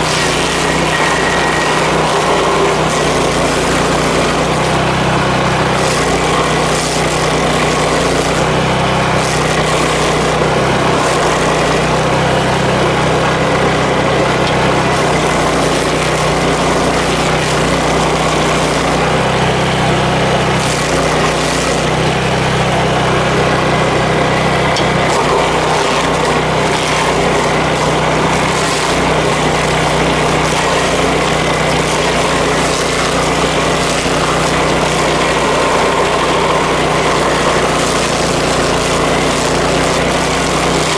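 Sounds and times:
stump grinder grinding: 0.0s - 40.9s.

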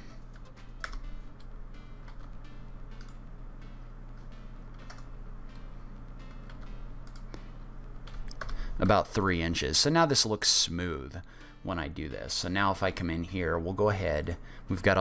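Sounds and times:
steady low hum: 0.0s - 15.0s
keyboard and mouse clicks: 0.3s - 2.4s, 3.0s - 3.2s, 4.7s - 5.1s, 6.2s - 7.4s, 8.0s - 8.6s.

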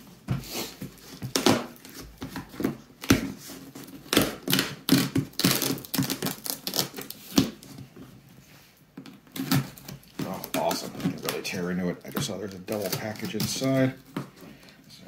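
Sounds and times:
tape and plastic crackling: 0.8s - 8.1s, 9.0s - 14.8s.

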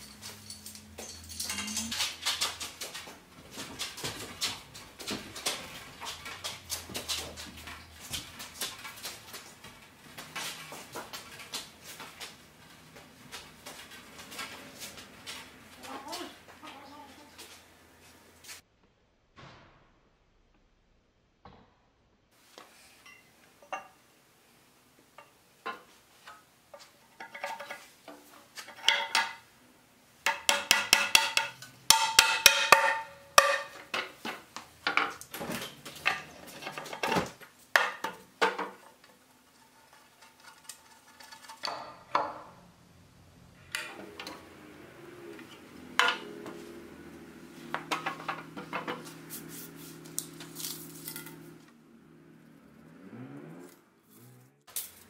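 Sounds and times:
hammer striking iron bracket: 30.3s - 33.9s.

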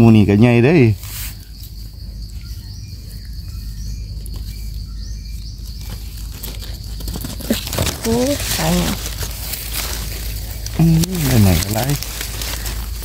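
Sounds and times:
high-pitched insect drone: 0.0s - 13.0s
hands digging through soil: 5.8s - 13.0s.

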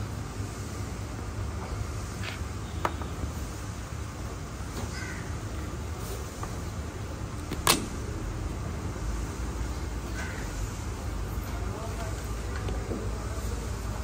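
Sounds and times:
street background rumble: 0.0s - 14.0s.

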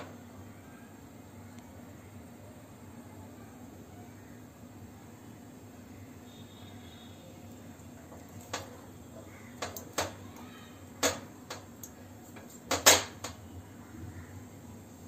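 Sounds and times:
gas flame hissing: 6.1s - 13.8s
metal tongs clacking: 9.5s - 10.2s.

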